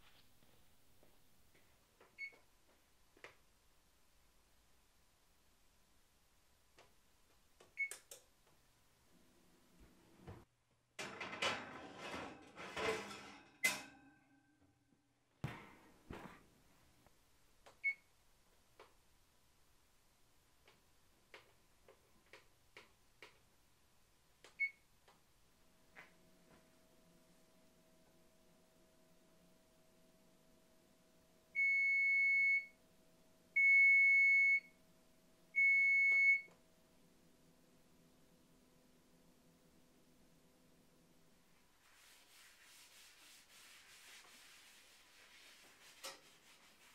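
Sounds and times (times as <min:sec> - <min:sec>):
pot scraping on wire rack: 0:11.0 - 0:14.0
oven timer beeps: 0:31.6 - 0:32.8, 0:33.6 - 0:34.7, 0:35.6 - 0:36.5.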